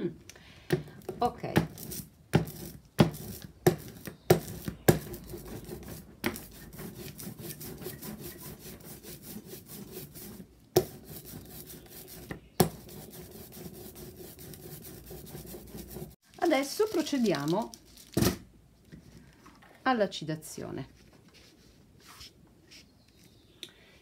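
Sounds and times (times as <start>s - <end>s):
brayer rolling over sticky ink: 1.0s - 17.4s.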